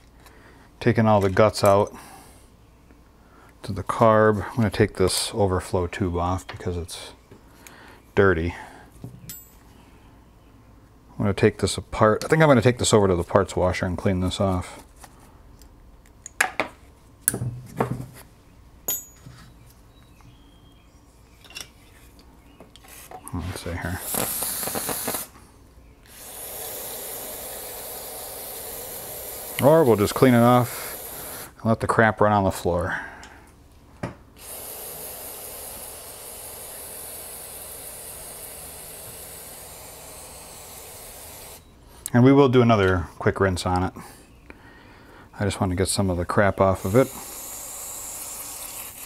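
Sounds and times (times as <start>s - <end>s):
aerosol spray hissing: 24.0s - 25.3s, 26.2s - 31.5s, 34.4s - 41.6s, 46.8s - 49.0s.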